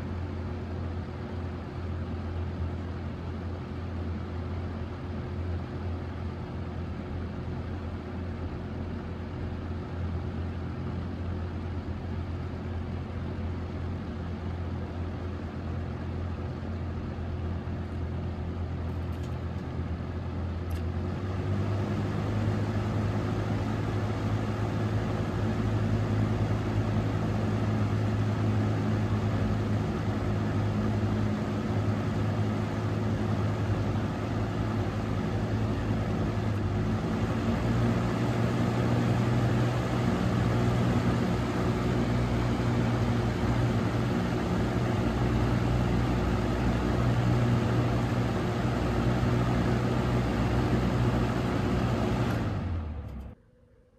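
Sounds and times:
fan motor hum: 0.0s - 53.9s.

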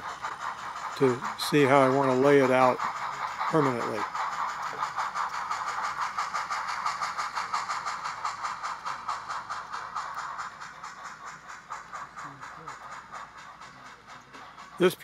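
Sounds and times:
model steam locomotive chuffing: 0.0s - 15.0s.

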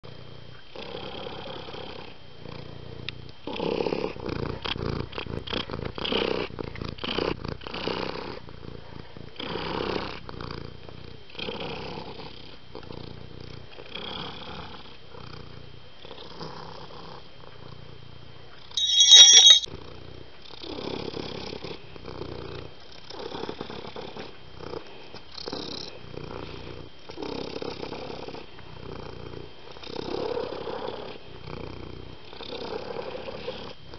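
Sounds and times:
short high-pitched cry: 18.8s - 19.7s.

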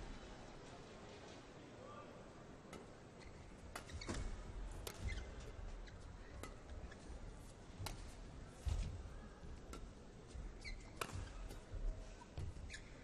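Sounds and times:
shoes squeaking on court floor: 3.2s - 6.1s, 10.6s - 11.5s, 12.2s - 13.0s
rackets striking shuttlecock: 7.8s - 8.2s, 10.9s - 11.7s.

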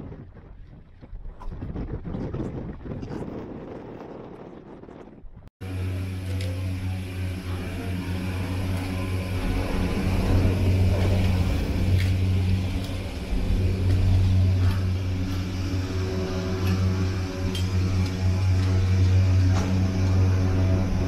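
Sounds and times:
low electric hum: 5.6s - 21.0s.

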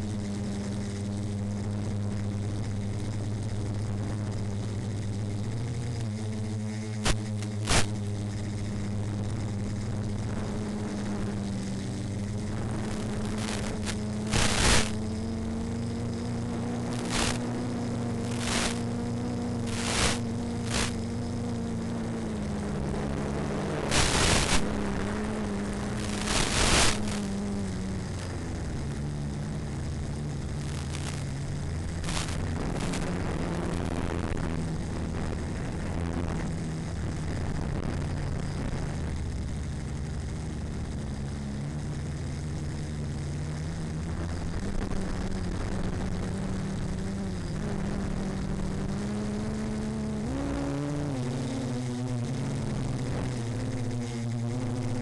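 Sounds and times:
model plane motor humming: 0.0s - 55.0s
loud rushing noise bursts: 7.0s - 8.0s, 13.2s - 15.1s, 17.0s - 17.5s, 18.2s - 18.8s, 19.6s - 21.0s, 23.8s - 28.5s, 30.6s - 34.4s.

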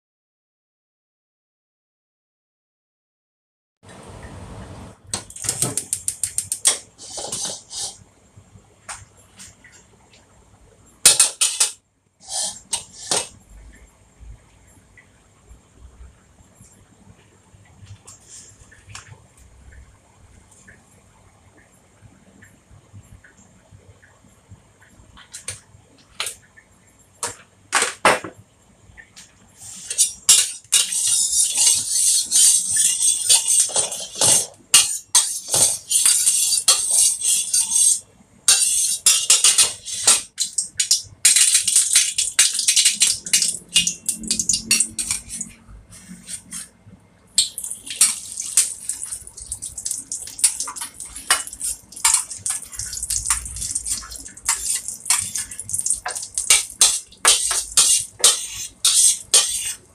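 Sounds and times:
metal spatula scraping a wok: 7.0s - 8.0s, 11.4s - 13.3s, 29.6s - 46.7s, 47.4s - 59.9s
oil sizzling in a wok: 29.6s - 45.4s, 47.4s - 59.8s.

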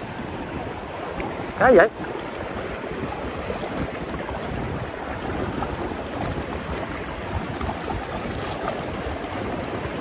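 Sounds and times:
surf washing on shore: 0.0s - 10.0s
wind rumbling on microphone: 0.0s - 10.0s.

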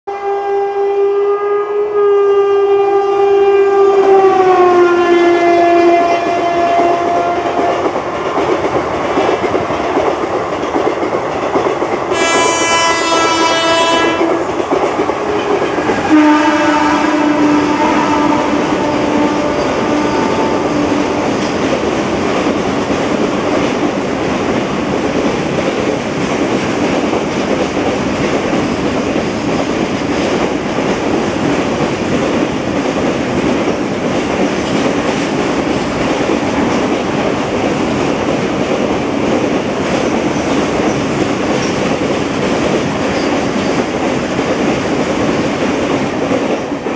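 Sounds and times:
locomotive horns blaring: 0.1s - 7.8s, 12.1s - 14.5s, 15.2s - 21.4s
freight train rumbling past: 0.1s - 46.9s.

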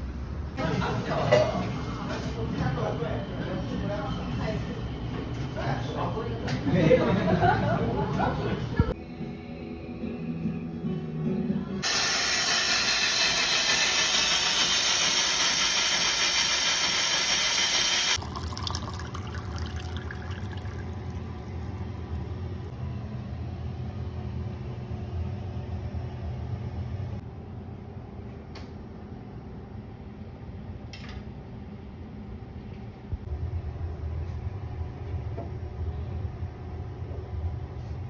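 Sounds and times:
loud steady hiss: 11.8s - 18.2s
low hum: 20.0s - 27.6s.

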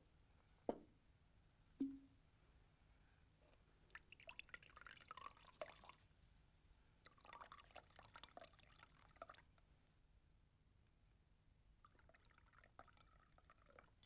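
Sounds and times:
wine pouring into glass: 3.9s - 5.9s, 7.1s - 9.4s, 11.9s - 14.0s.

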